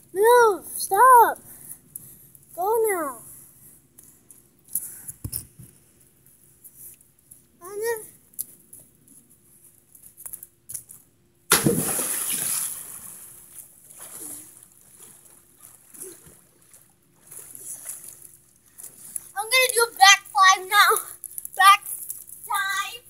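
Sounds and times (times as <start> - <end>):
big splash into pool: 11.5 - 13.4
water sloshing and trickling: 11.6 - 20.0.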